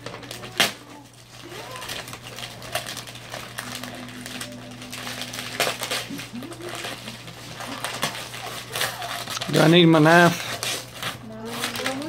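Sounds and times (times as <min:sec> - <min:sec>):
paper rustling and crinkling: 0:00.0 - 0:12.0.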